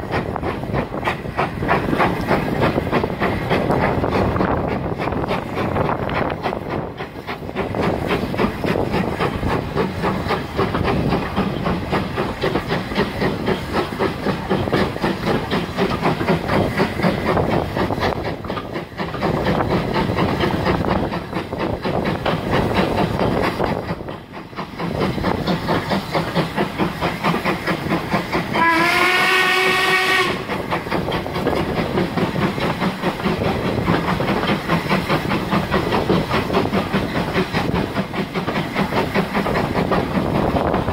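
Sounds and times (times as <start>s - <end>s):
steam locomotive chugging: 0.0s - 40.9s
steam whistle blast: 28.6s - 30.5s.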